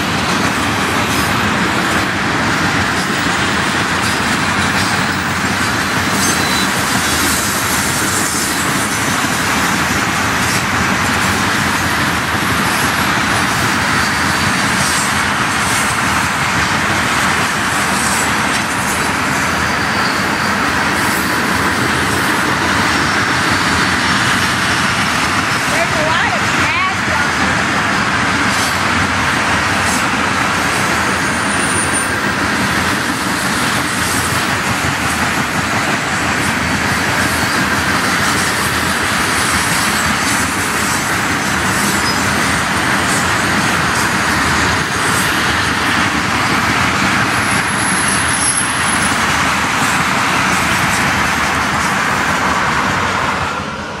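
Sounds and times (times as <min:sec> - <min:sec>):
train wheels rumbling on rail: 0:00.0 - 0:54.0
faint high squeal: 0:19.9 - 0:20.6.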